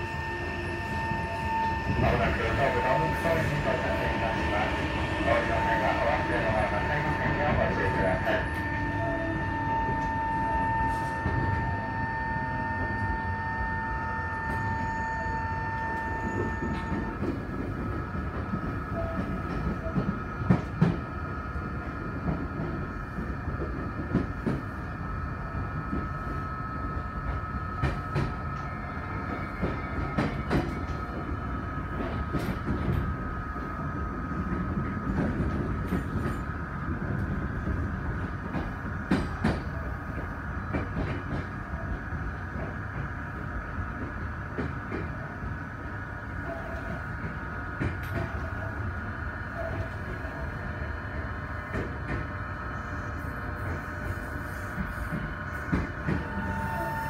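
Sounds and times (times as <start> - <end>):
train motor control whine: 0.0 - 21.0, 46.4 - 57.0
rail-joint clicks: 15.7 - 21.0, 27.3 - 31.3, 31.9 - 33.2, 34.5 - 41.5, 46.4 - 48.7, 51.6 - 52.3, 53.6 - 56.9.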